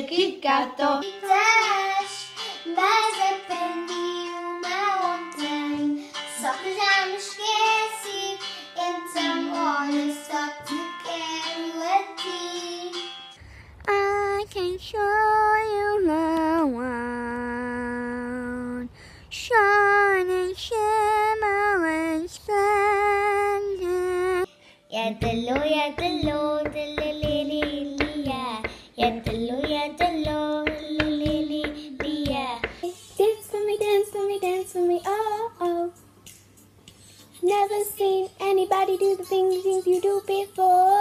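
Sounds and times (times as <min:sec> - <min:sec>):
girl singing: 0:00.0 - 0:36.0, 0:37.4 - 0:41.0.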